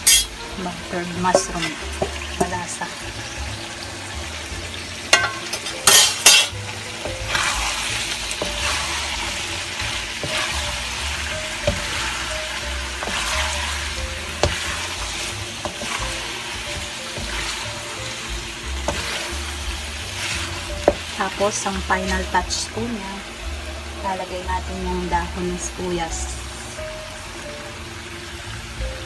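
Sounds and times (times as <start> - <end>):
food sizzling in a hot pan: 0.0 - 29.0
stirring scraping a pan: 5.0 - 21.7.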